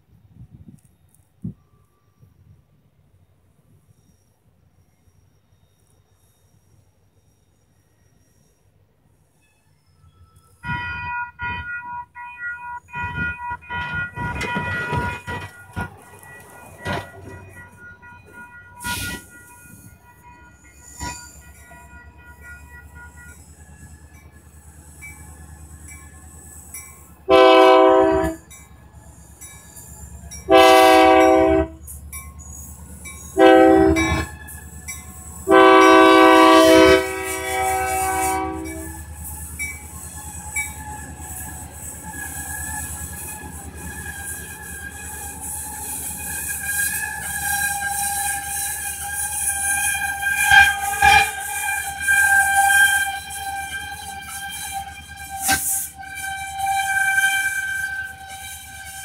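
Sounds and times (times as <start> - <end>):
locomotive engine rumble: 8.1 - 59.0
crossing signal bell ringing: 10.2 - 37.1, 38.3 - 48.7
locomotive horn blasts: 10.6 - 23.9, 27.2 - 28.6, 30.4 - 31.9, 33.3 - 34.6, 35.4 - 39.5, 40.3 - 59.0.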